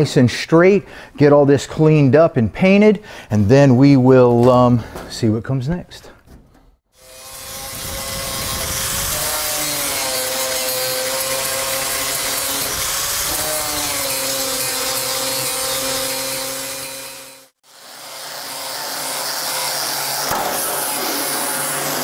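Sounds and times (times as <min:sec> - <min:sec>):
angle grinder grinding metal: 0:07.0 - 0:22.0
grinder sanding steel: 0:07.0 - 0:22.0.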